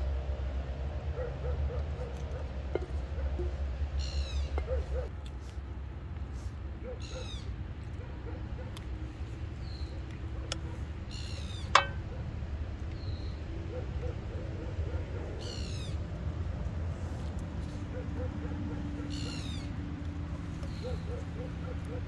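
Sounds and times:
birds calling: 1.2 - 5.1, 6.8 - 7.6, 9.4 - 12.2, 15.0 - 16.1, 17.1 - 22.0.

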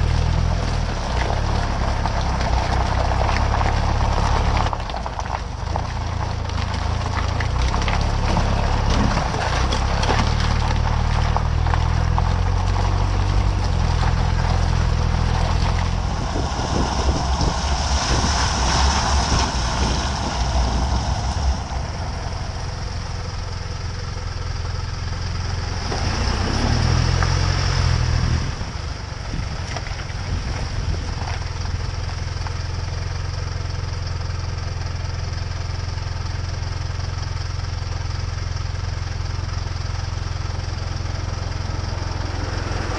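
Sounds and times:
tyres crunching through slushy snow: 0.0 - 33.7
car engine running: 0.0 - 42.9.

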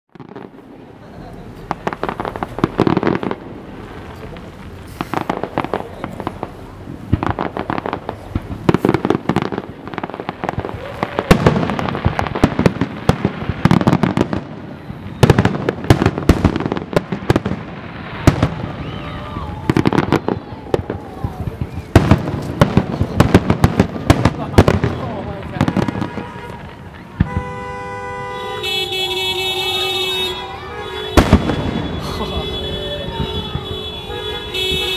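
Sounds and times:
fireworks bursting: 0.1 - 34.9.

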